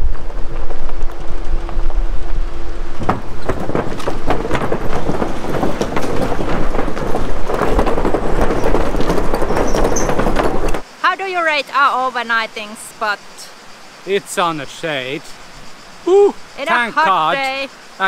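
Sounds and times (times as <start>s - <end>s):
wooden planks clattering under tyres: 0.0s - 10.8s.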